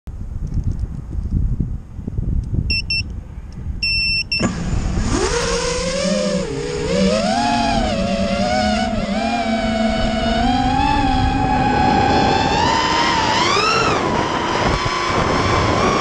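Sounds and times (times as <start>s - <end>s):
short electronic beeps: 2.7s - 3.1s, 3.8s - 4.5s
low rumbling noise: 3.2s - 16.0s
drone motors whining: 4.3s - 16.0s.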